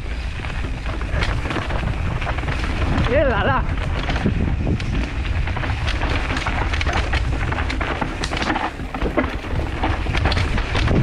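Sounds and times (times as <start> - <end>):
bike tyres clattering on rough ground: 0.0 - 11.0
wind rumbling on microphone: 0.0 - 11.0.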